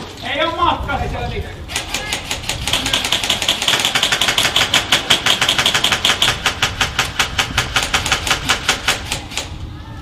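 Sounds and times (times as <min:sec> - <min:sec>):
airsoft guns firing full auto: 0:01.7 - 0:09.5.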